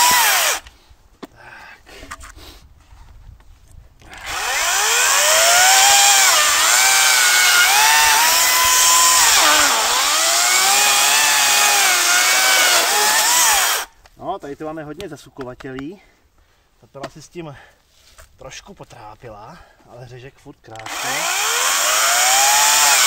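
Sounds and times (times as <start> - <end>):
electric chainsaw cutting log: 0.0 - 0.6, 4.1 - 13.9, 20.8 - 23.0.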